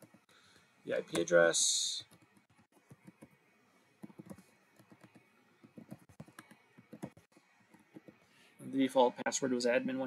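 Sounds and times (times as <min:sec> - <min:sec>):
faint typing on keyboard: 0:01.0 - 0:08.4.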